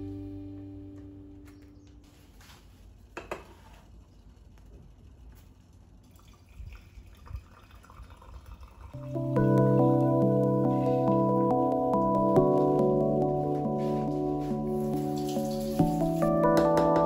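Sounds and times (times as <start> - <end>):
music: 0.0 - 1.8, 9.0 - 17.0
coffee dripping into mug: 6.0 - 9.0.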